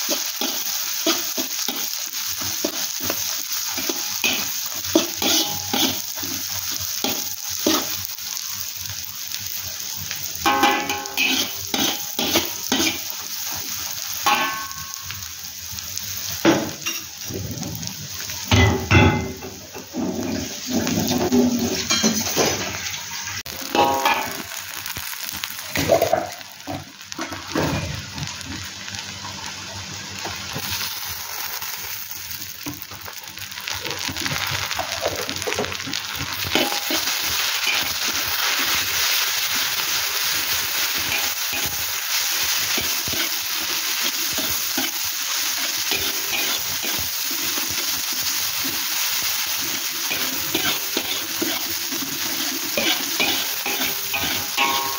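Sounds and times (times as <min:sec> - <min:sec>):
metal spatula scraping a pan: 0:00.0 - 0:08.0, 0:10.4 - 0:13.6, 0:18.5 - 0:24.4, 0:36.5 - 0:38.8, 0:41.0 - 0:47.9, 0:49.6 - 0:54.9
oil sizzling in a wok: 0:00.0 - 0:54.9.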